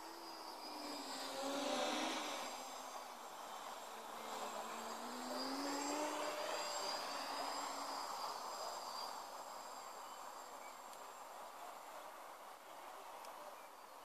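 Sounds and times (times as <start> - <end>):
quadcopter motors buzzing: 0.0 - 14.0.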